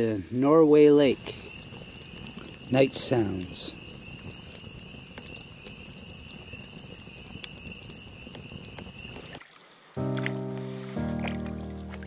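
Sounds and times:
campfire crackling and popping: 0.0 - 9.4.

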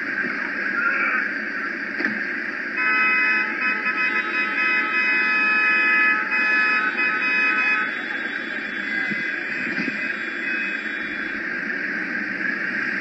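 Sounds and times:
road traffic noise: 0.0 - 13.0
car horn blast: 2.8 - 11.3.

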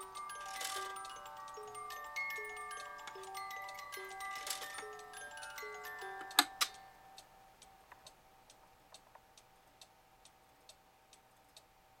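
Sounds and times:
music-box note: 0.0 - 7.4
cuckoo clock clacks: 0.0 - 8.2
pendulum clock ticking: 0.0 - 11.9.

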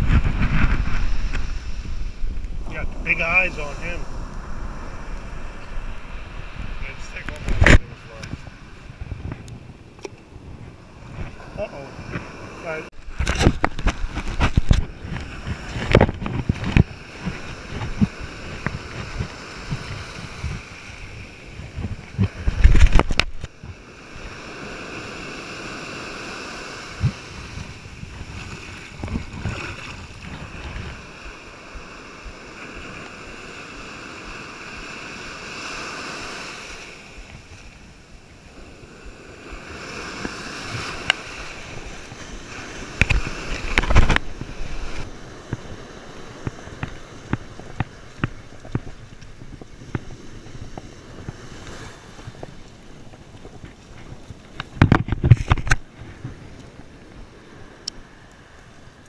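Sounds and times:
microphone handling noise: 0.0 - 12.3, 13.0 - 23.8, 26.9 - 31.1, 40.1 - 45.8, 46.4 - 56.7
wind thumps on microphone: 0.0 - 24.6, 26.8 - 32.9, 39.0 - 57.3
ocean surf washing on beach: 0.0 - 59.0.

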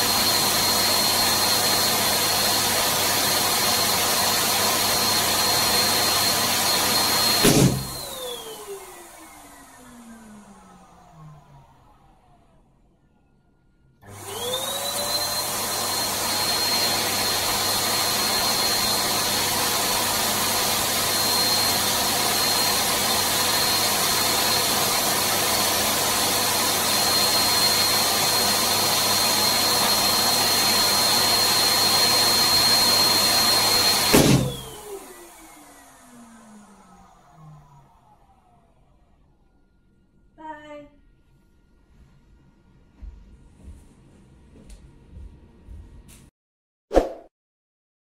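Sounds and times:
electric balloon pump whine: 0.0 - 13.3, 14.0 - 40.0
balloon bursting bang: 7.4 - 8.1, 34.1 - 34.7.

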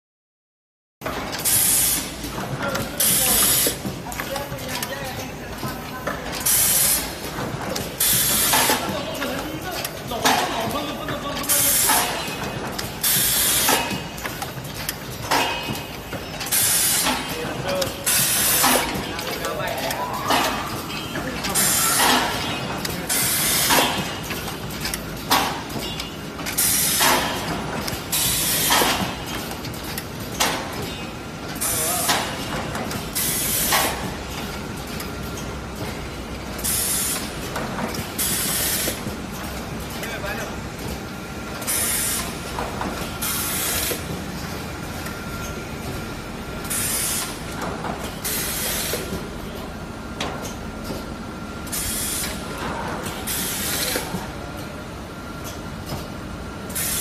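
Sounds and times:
machine running noise: 1.0 - 57.0.

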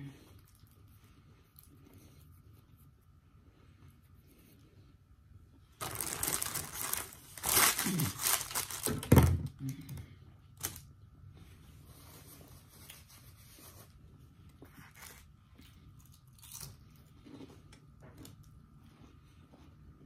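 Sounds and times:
paper bag tearing and crinkling: 5.8 - 9.3, 10.6 - 10.8.

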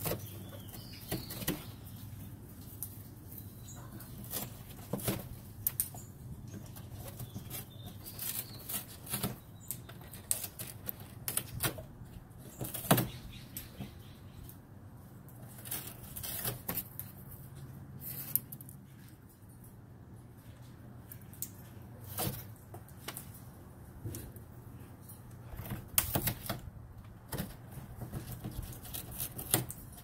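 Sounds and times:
bird scratching on cardboard: 6.6 - 11.8, 27.3 - 30.0.

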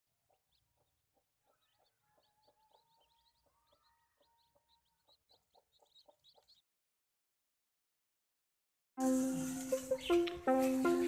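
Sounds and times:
chicks peeping: 0.2 - 6.6, 9.1 - 11.0
hen clucking: 0.2 - 6.6.

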